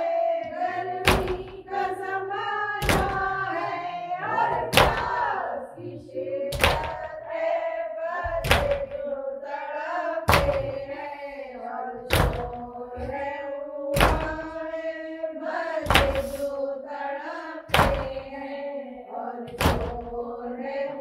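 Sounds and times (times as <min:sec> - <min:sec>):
person chanting lament: 0:00.0 - 0:07.0, 0:15.8 - 0:16.6
heavy chest slaps: 0:01.0 - 0:01.6, 0:02.8 - 0:03.4, 0:04.7 - 0:05.2, 0:06.5 - 0:07.1, 0:08.4 - 0:09.0, 0:10.3 - 0:10.9, 0:12.1 - 0:13.2, 0:14.0 - 0:14.5, 0:15.9 - 0:16.4, 0:17.7 - 0:18.3, 0:19.5 - 0:20.2.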